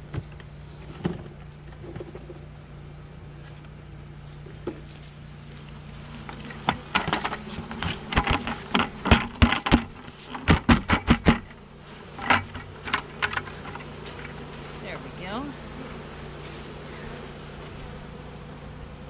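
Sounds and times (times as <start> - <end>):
knocks on plastic bucket: 6.6 - 11.6.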